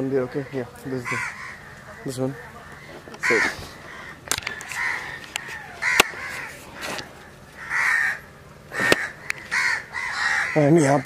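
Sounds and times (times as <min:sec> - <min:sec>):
crows cawing: 0:00.1 - 0:11.0
sharp clicks: 0:04.2 - 0:07.1.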